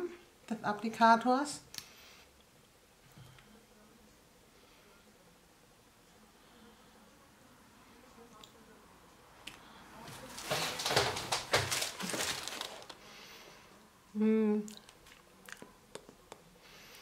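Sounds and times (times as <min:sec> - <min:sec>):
close rustling and crackling: 0:10.0 - 0:13.1
person humming: 0:14.1 - 0:14.8.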